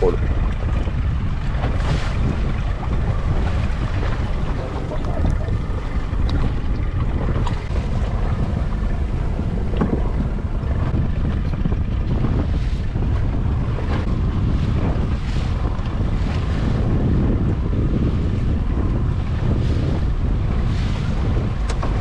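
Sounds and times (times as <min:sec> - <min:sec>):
sea water rushing along hull: 0:00.0 - 0:22.0
wind buffeting microphone: 0:00.0 - 0:22.0.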